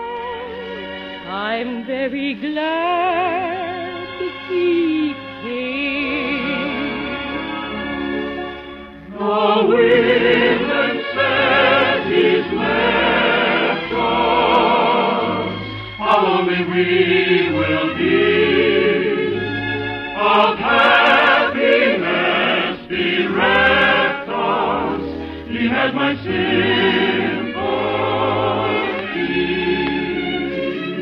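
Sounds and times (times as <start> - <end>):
orchestra playing: 3.1 - 31.0
operetta singing with choir: 9.0 - 31.0.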